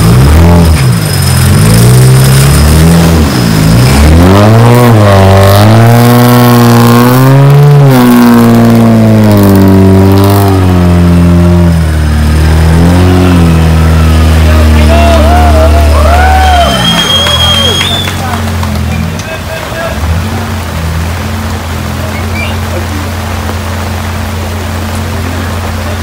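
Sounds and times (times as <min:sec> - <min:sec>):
engine revving hard: 0:00.0 - 0:19.1.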